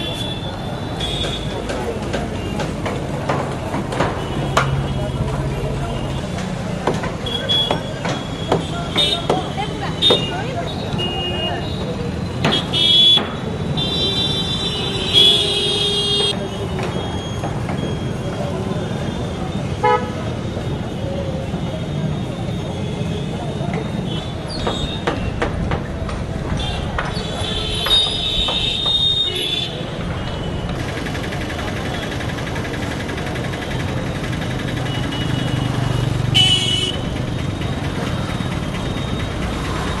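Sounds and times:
street traffic: 0.0 - 40.0
vehicle horns honking: 12.5 - 16.5, 19.8 - 20.3, 26.6 - 30.6, 36.3 - 37.1
motorcycle engines running: 29.8 - 40.0.

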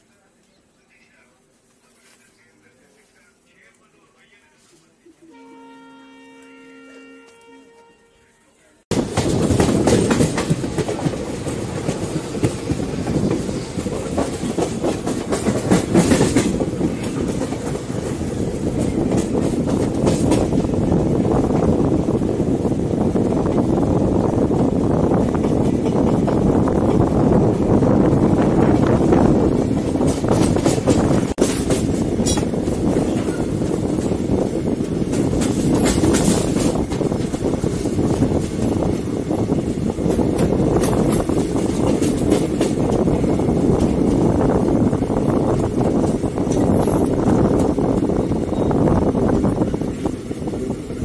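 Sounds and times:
train coaches rumbling: 8.8 - 51.0
wheels clacking over rail joints: 8.9 - 20.7, 28.3 - 34.2, 34.9 - 44.4.

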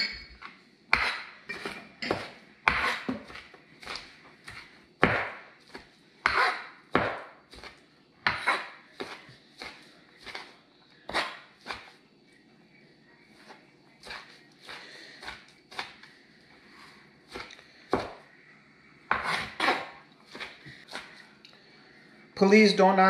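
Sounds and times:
cleaver chopping on cutting board: 2.1 - 5.4, 6.2 - 10.4.

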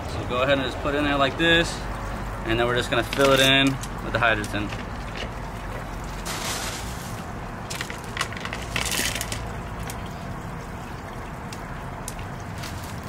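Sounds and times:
low steady rumble: 0.0 - 13.0
clay pebbles rattling into pot: 2.9 - 5.3, 6.2 - 10.1.

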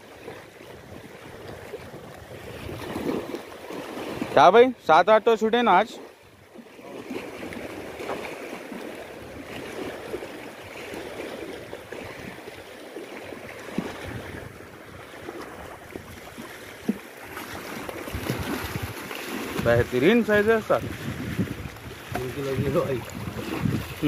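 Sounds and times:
small waves lapping on concrete: 0.0 - 24.0.

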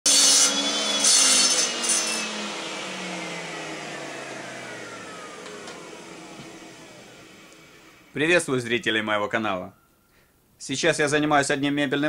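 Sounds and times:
circular saw winding down: 0.1 - 9.4.

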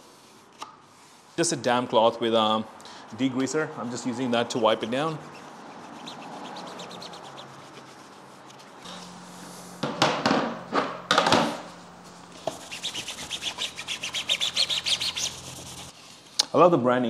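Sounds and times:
cloth rubbing on plastic panel: 4.3 - 16.0.

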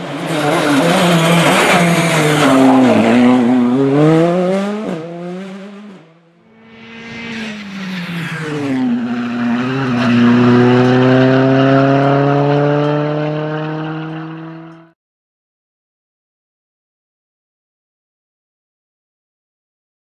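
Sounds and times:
rally car engine at full throttle: 0.0 - 15.0.

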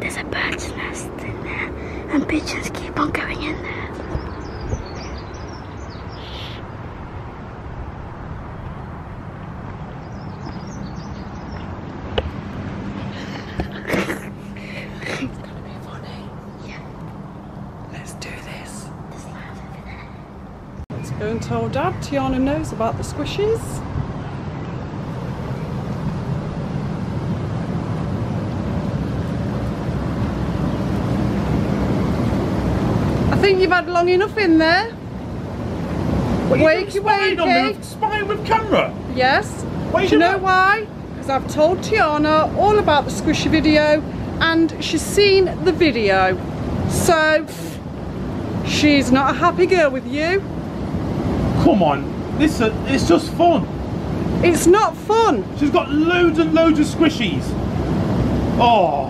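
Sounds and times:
small birds chirping: 0.0 - 7.3, 9.4 - 12.4, 13.0 - 25.8
steady rushing background noise: 0.0 - 59.0
hot tub jets churning water: 20.5 - 59.0.

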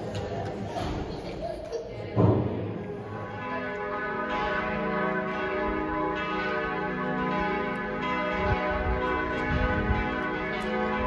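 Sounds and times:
church bells ringing: 2.8 - 11.0.

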